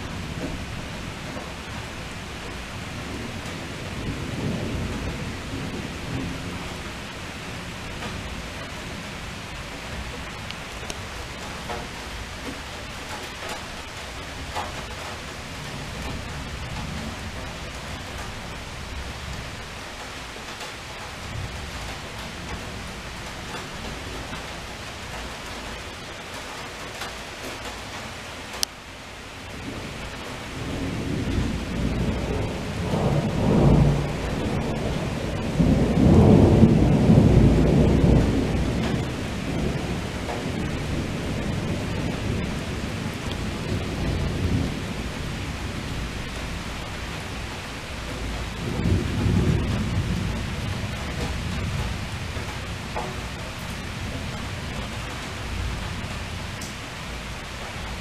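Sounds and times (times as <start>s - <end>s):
heavy rain hissing: 0.0s - 58.0s
thunder rolling: 29.6s - 56.6s.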